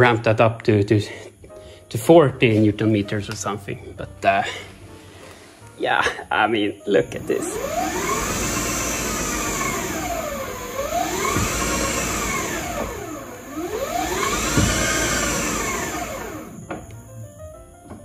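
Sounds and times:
electric motor whining: 0:07.0 - 0:17.1.

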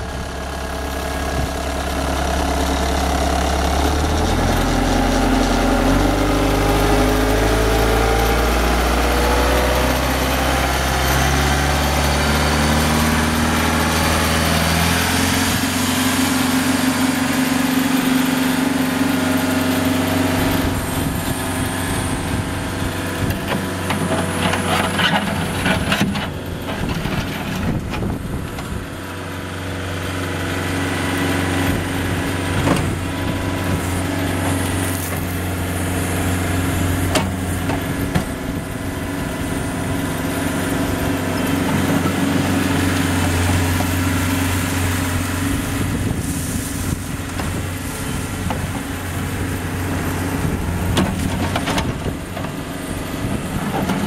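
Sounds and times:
diesel engine revving: 0:00.0 - 0:54.0
rattling and clanking: 0:23.2 - 0:28.8, 0:50.4 - 0:54.0.

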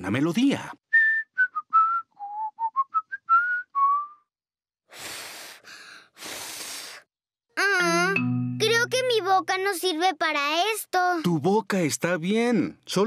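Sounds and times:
person whistling a tune: 0:00.9 - 0:04.3
breathy puffs of air: 0:04.9 - 0:07.1.

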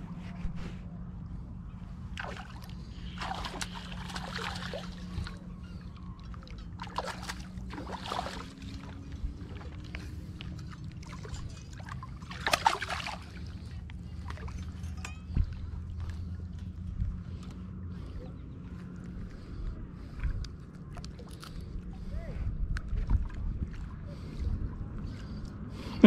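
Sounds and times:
fish splashing in water: 0:02.1 - 0:05.4, 0:06.2 - 0:14.6
wind on microphone: 0:21.8 - 0:25.7.

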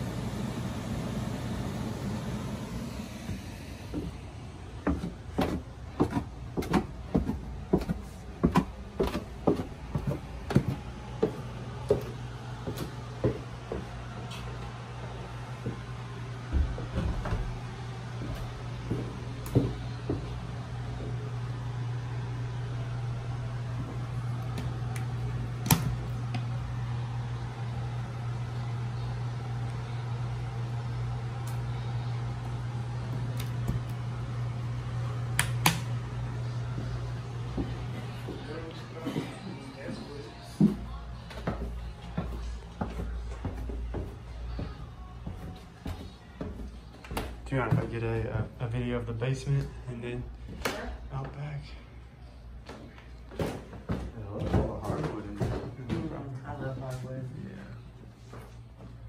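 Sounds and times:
steady low hum: 0:00.0 - 0:59.0
footsteps climbing stairs: 0:03.2 - 0:21.3, 0:36.7 - 0:48.0, 0:52.6 - 0:56.8.

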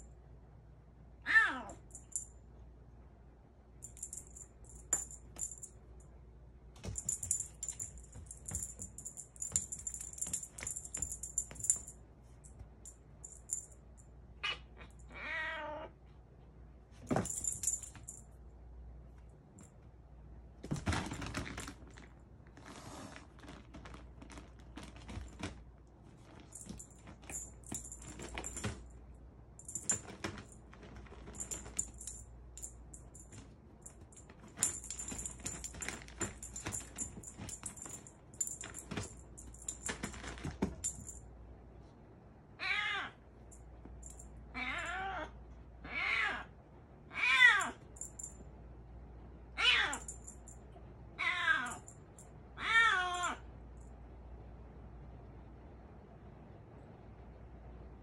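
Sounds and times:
high jingling: 0:06.9 - 0:12.0
wand toy dragged on wooden floor: 0:22.6 - 0:23.4.

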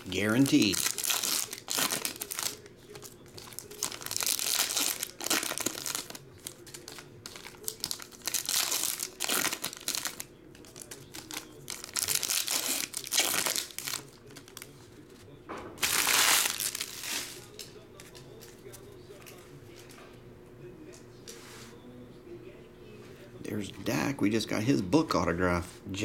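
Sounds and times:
foil packs torn and crinkled: 0:00.1 - 0:14.7, 0:15.8 - 0:17.5.

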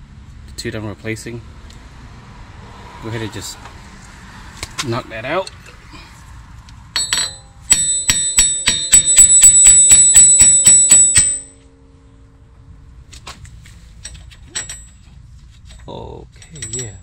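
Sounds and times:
hammer striking metal stud: 0:07.0 - 0:11.7.

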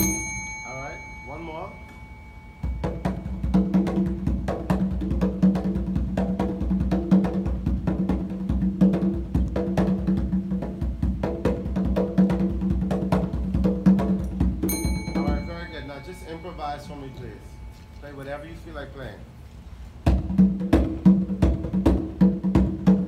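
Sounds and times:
conga drum played by hand: 0:02.6 - 0:15.7, 0:20.0 - 0:23.0.

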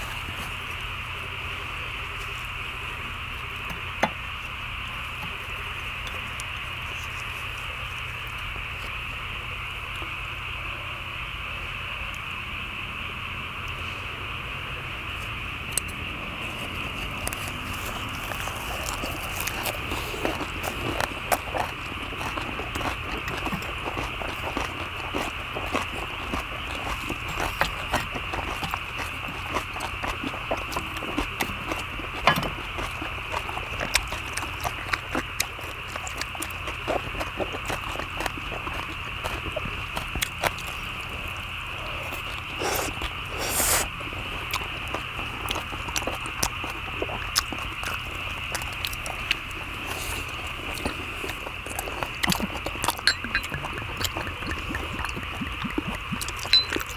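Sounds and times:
people chewing and crunching: 0:00.0 - 0:56.9.

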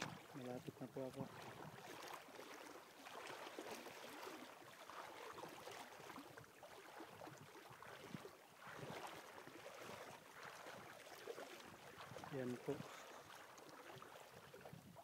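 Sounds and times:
shallow river water splashing: 0:00.0 - 0:15.0.

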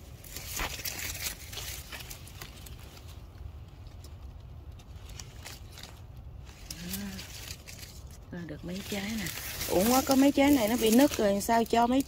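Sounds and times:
leaves brushing phone: 0:04.9 - 0:12.0.

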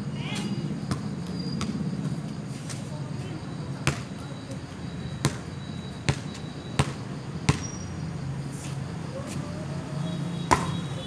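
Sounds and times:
volleyball bouncing on concrete: 0:03.8 - 0:04.2, 0:05.2 - 0:07.8, 0:10.4 - 0:10.9.

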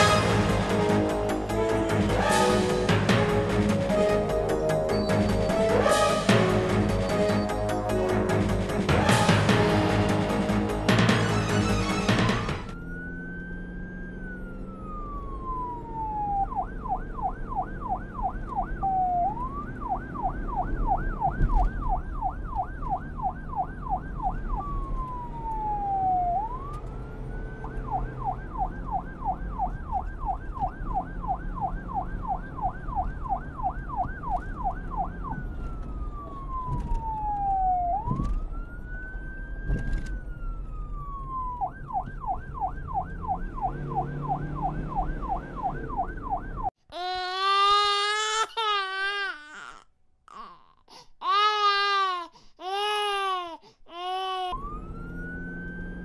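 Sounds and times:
police siren wailing and yelping: 0:11.2 - 0:46.8, 0:54.2 - 0:56.0.

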